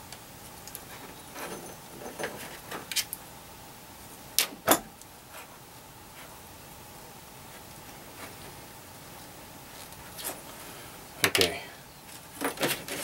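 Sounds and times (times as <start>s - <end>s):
hands rustling with cable: 7.4s - 13.0s.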